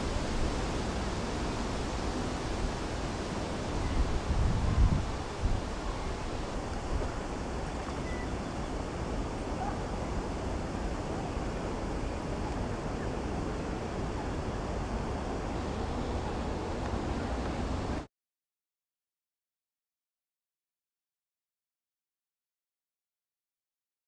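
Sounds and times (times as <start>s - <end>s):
wind noise on microphone: 0.0s - 18.1s.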